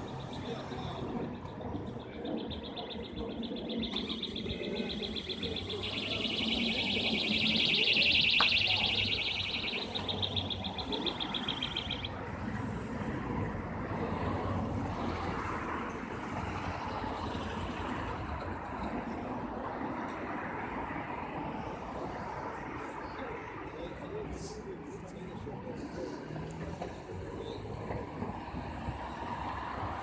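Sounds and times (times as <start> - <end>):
high trilling chirp: 0.0 - 12.2
city traffic passing: 0.0 - 30.0.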